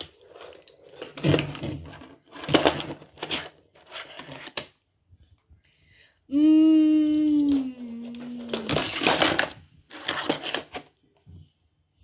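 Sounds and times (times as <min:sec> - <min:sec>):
toy cars clattering on plastic tray: 0:00.0 - 0:04.7, 0:08.2 - 0:10.9.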